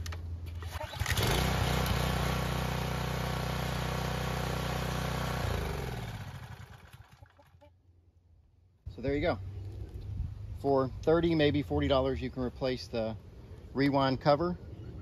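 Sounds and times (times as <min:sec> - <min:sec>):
pressure washer engine running: 0:00.8 - 0:07.2.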